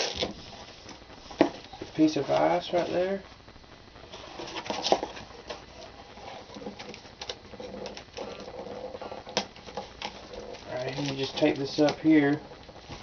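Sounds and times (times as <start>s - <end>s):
cardboard rustling and scraping: 0.0s - 3.2s, 4.1s - 13.0s.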